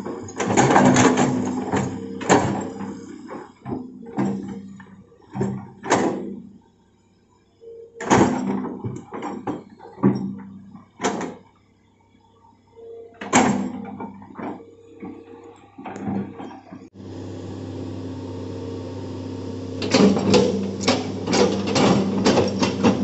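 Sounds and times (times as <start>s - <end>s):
excavator bucket clanking: 0.0s - 3.0s, 18.6s - 23.0s
excavator engine running: 0.0s - 4.8s, 15.5s - 23.0s.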